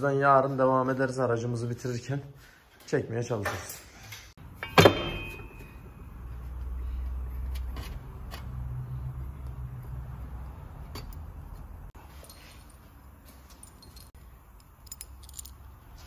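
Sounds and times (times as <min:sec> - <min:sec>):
sharp metallic clang: 0:04.5 - 0:06.0.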